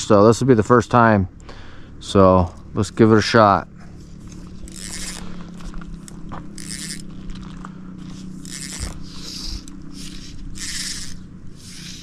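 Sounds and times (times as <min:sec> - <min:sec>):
steady low hum: 0:00.0 - 0:12.0
fly line swishing: 0:04.0 - 0:12.0.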